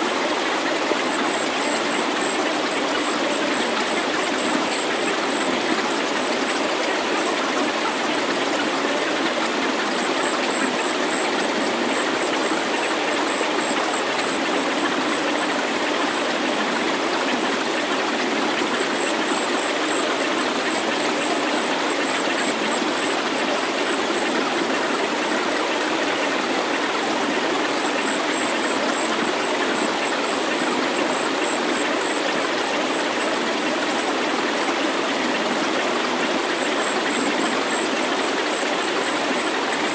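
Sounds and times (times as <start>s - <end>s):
thin high pulsing tone: 29.8s - 39.9s.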